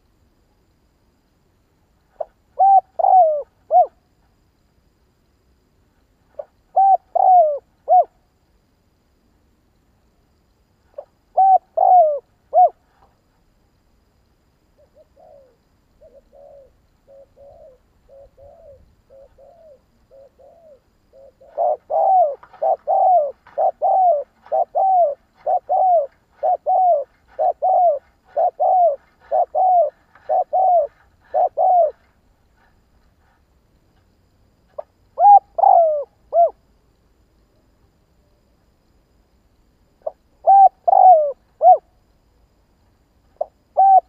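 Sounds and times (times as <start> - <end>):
dove cooing: 2.1 - 4.0, 6.3 - 8.2, 10.9 - 13.0, 14.8 - 33.4, 34.8 - 36.6, 40.0 - 41.9, 43.4 - 44.0.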